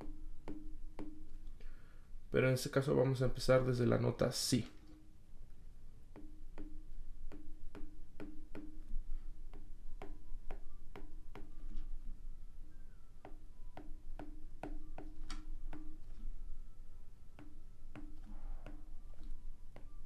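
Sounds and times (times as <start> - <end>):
stylus tapping on tablet: 0.0 - 1.6, 6.0 - 11.9, 13.2 - 16.3, 17.3 - 20.0.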